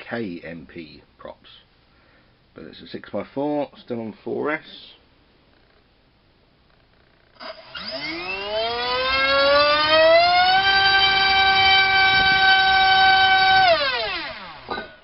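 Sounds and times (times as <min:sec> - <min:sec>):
drone motor and propeller whine: 0:07.4 - 0:15.0.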